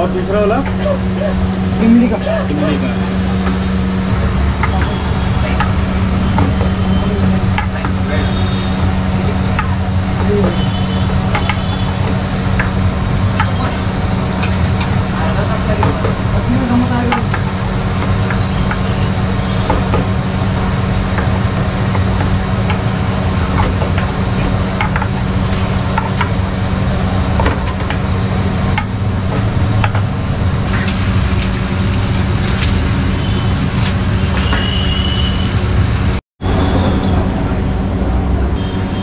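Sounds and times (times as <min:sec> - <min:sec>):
steady low hum: 0:00.0 - 0:33.5
hot oil sizzling: 0:02.0 - 0:36.2
utensils knocking: 0:04.4 - 0:08.5, 0:09.3 - 0:19.0, 0:21.1 - 0:26.5.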